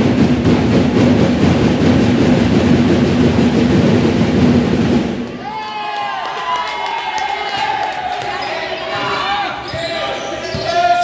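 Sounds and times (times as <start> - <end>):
crowd noise from spectators: 3.2 - 11.0.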